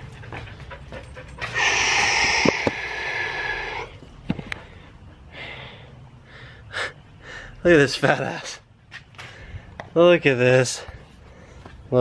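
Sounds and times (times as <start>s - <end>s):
dog panting: 0.0s - 2.3s.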